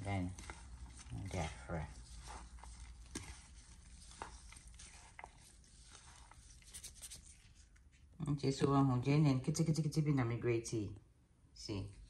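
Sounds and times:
gloved hand rustling in grated food: 0.0 - 7.9.

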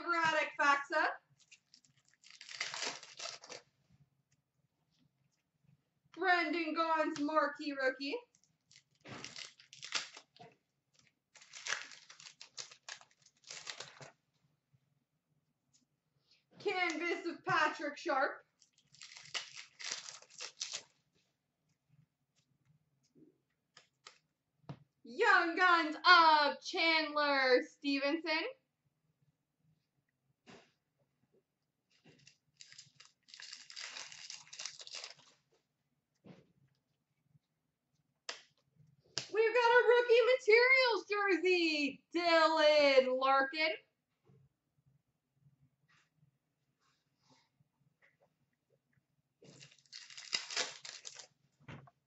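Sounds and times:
foil wrapper crinkling: 1.4 - 3.7, 8.3 - 14.1, 18.6 - 21.0, 32.1 - 35.5, 49.5 - 51.4.

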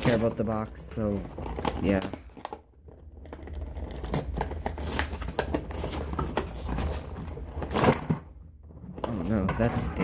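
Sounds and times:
plastic film tearing and crinkling: 3.2 - 8.2.

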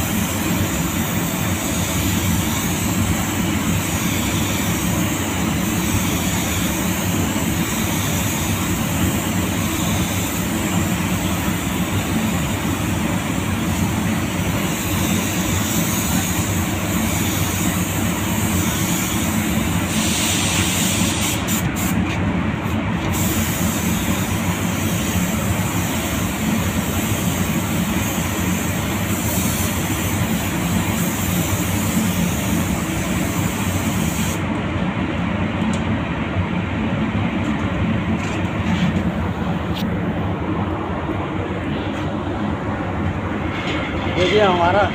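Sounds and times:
spray gun hissing: 0.0 - 22.0, 23.0 - 34.5
constant low rumble: 0.0 - 44.9.

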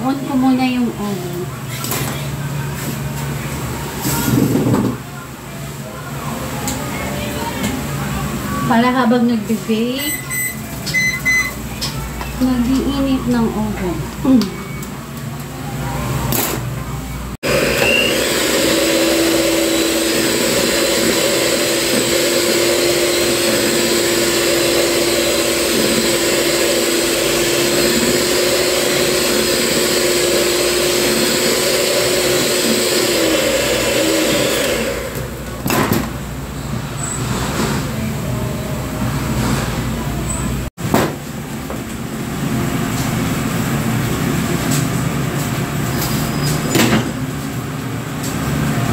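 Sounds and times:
electric hand mixer whirring: 17.4 - 35.4.

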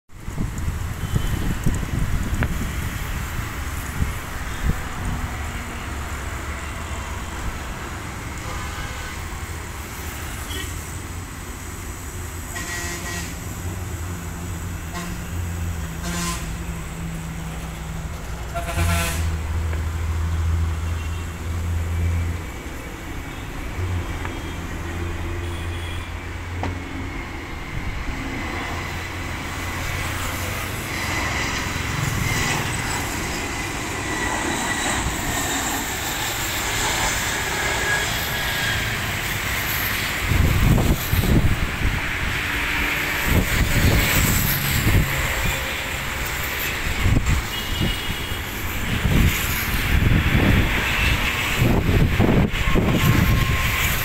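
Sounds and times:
traffic rumbling: 0.1 - 54.0
airliner jet engines whining: 0.2 - 54.0
vehicle horn honks: 10.4 - 10.7, 12.5 - 13.4, 16.0 - 16.6, 18.5 - 19.3, 25.4 - 26.1, 47.5 - 48.4.

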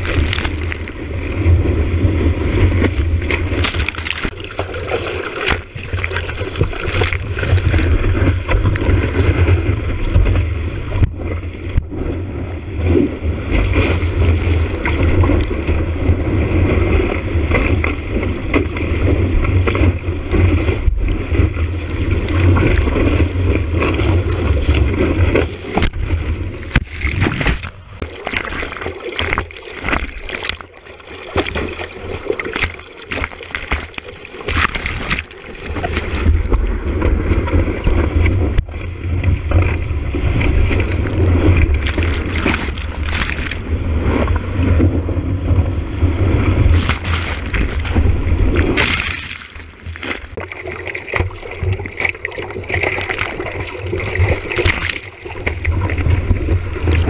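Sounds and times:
sharp water splashes: 0.0 - 9.8, 24.4 - 37.6, 39.4 - 44.8, 46.0 - 57.0
water buffeting camera housing: 2.8 - 4.4, 25.7 - 28.1, 46.6 - 50.4.

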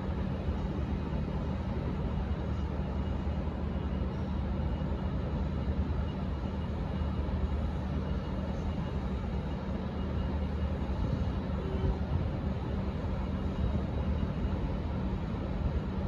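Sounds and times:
busy rail yard noise: 0.0 - 16.0
diesel trains idling: 0.0 - 16.0.

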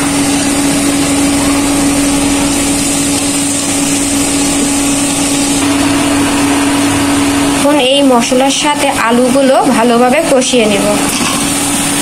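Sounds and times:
small electric motor humming: 0.0 - 9.3.

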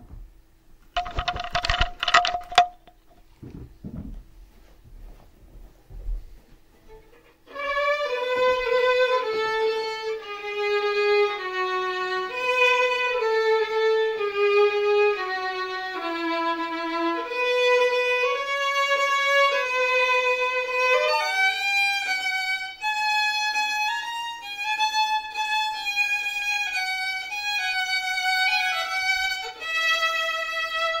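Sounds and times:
solo violin: 6.8 - 31.0.

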